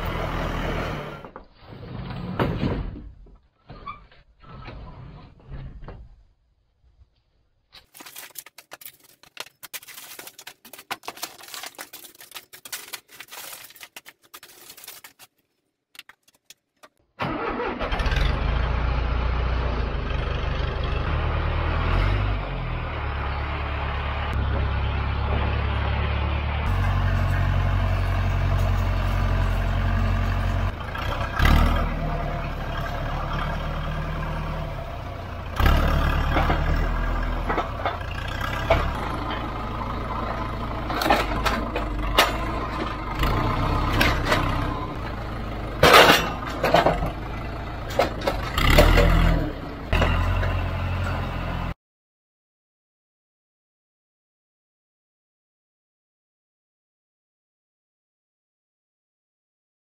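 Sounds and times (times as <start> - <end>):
tractor engine running: 0.0 - 1.5, 15.9 - 51.8.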